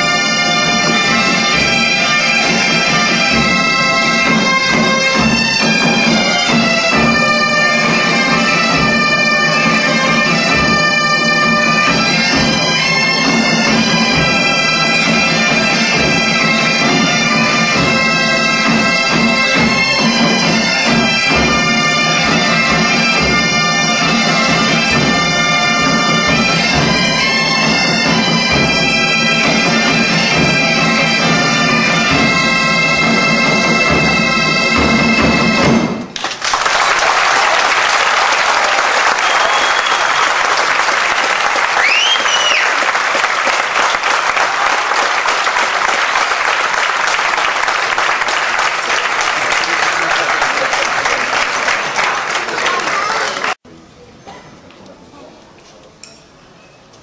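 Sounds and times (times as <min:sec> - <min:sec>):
bagpipe melody over drone: 0:00.0 - 0:35.6
crowd applauding: 0:36.1 - 0:53.6.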